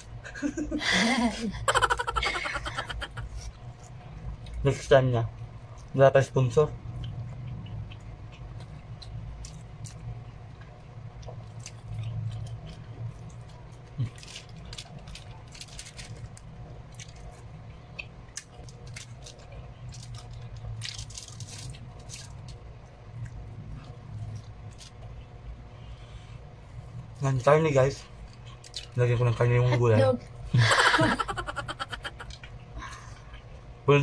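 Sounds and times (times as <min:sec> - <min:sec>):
steady low hum: 0:00.0 - 0:34.0
chewing and mouth sounds: 0:07.0 - 0:25.3.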